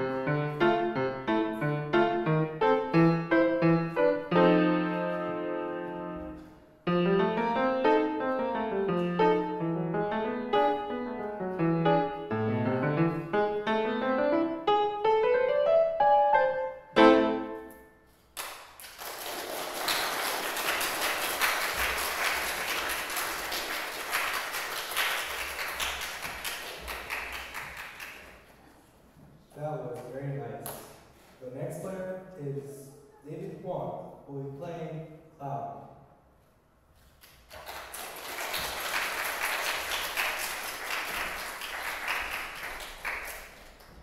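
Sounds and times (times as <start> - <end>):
solo piano: 0.0 - 17.9
audience applauding: 18.4 - 28.3, 37.5 - 44.0.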